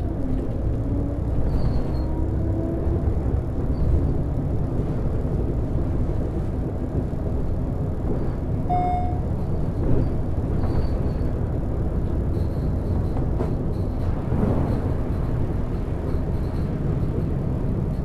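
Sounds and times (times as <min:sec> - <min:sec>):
diesel bus engine rumble: 0:00.0 - 0:18.0
short beep: 0:08.7 - 0:09.2.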